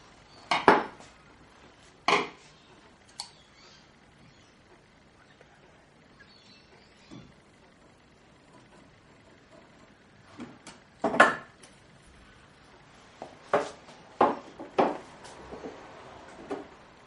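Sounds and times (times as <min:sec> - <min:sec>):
tools and wood knocking: 0:00.5 - 0:01.0, 0:02.0 - 0:02.4, 0:07.1 - 0:11.8, 0:13.2 - 0:16.8.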